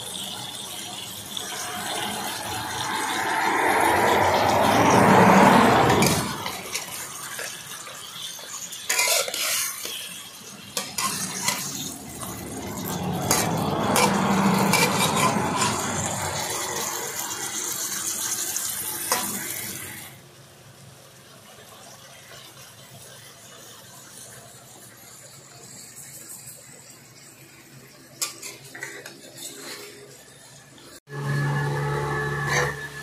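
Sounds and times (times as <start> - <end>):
metal spatula scraping in wok: 0.0 - 20.1, 28.2 - 33.0
food sizzling in hot oil: 0.0 - 33.0.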